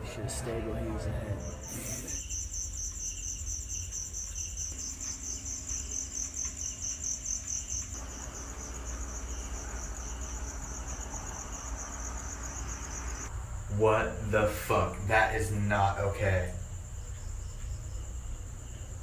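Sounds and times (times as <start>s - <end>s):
night insects trilling: 0.0s - 19.0s.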